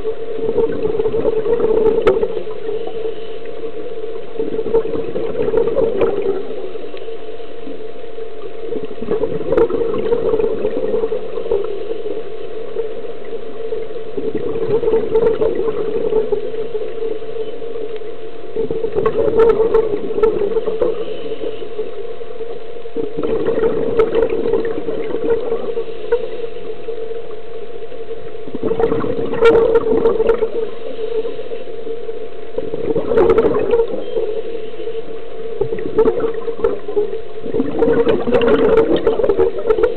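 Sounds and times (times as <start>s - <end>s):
gurgling underwater bubble bursts: 0.0s - 3.0s, 4.0s - 7.0s, 7.6s - 27.3s, 28.3s - 31.3s, 32.5s - 34.6s, 35.5s - 39.9s
steady underwater hum: 0.0s - 39.9s.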